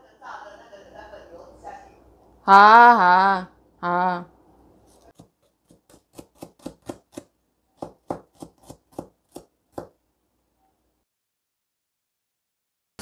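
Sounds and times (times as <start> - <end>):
cleaver chopping on wooden board: 5.2 - 10.0.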